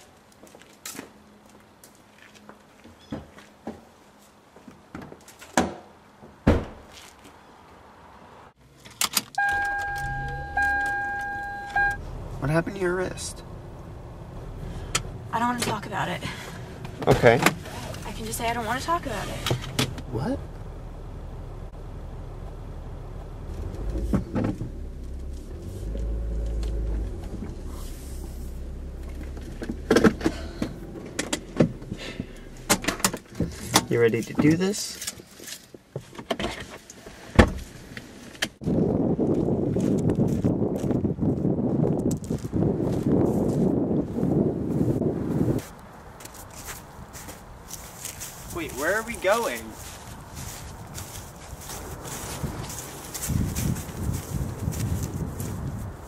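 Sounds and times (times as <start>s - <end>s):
car door thumping: 6.4s - 6.8s, 29.4s - 33.9s
car warning chime: 9.4s - 12.0s
low rumble inside car: 9.4s - 34.0s.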